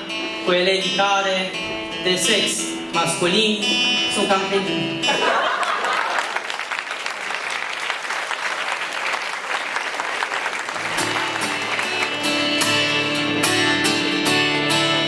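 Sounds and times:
acoustic guitar strumming chords: 0.0 - 5.2, 10.8 - 15.0
audience clapping: 5.5 - 14.0.

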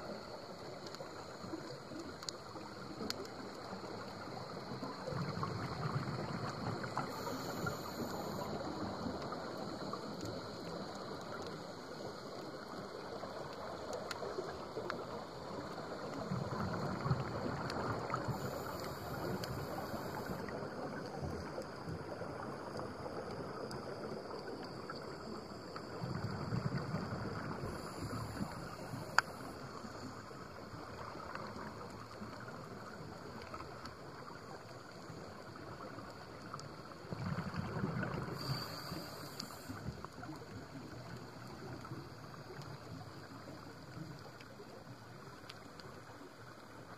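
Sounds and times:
muffled underwater noise: 0.0 - 46.9
high hiss: 6.9 - 9.0, 38.3 - 39.9.

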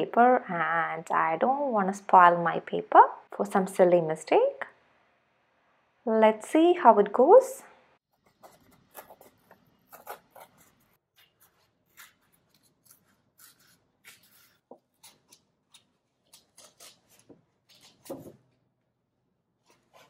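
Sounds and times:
paper ripping by hand: 8.3 - 18.4.

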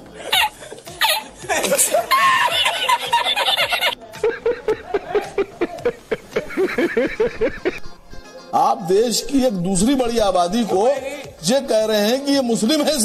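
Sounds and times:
man cackling high-pitched: 0.2 - 8.0
man laughing rhythmically: 0.2 - 8.0.

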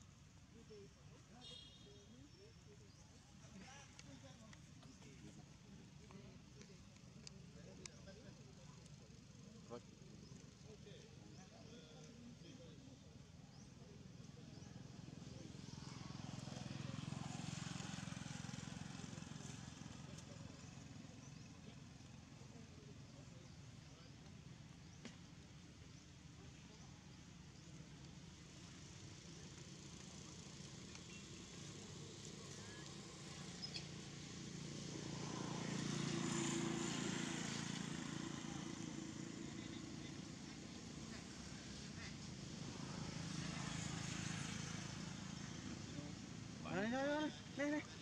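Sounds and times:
vehicle engine passing by: 14.6 - 22.4, 29.7 - 48.0.

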